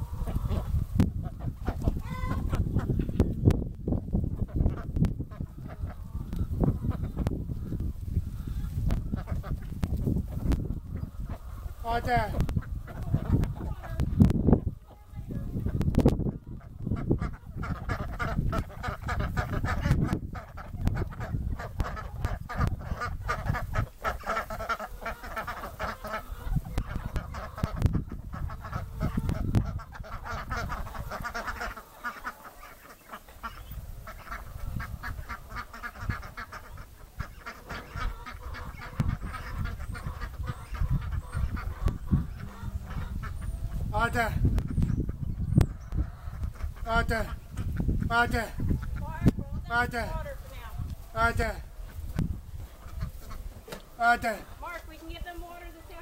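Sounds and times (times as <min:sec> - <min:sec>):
ducks quacking: 0:00.0 - 0:03.4, 0:04.1 - 0:56.0
low rumbling noise: 0:39.0 - 0:46.8.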